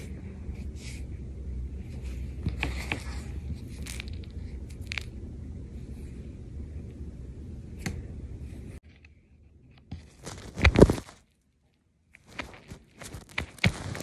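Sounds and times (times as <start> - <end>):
fur rubbing on microphone: 12.3 - 14.0.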